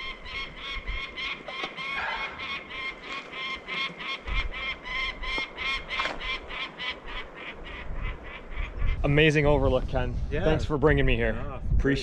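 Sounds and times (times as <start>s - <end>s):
bird of prey alarm calls: 0.0s - 9.0s.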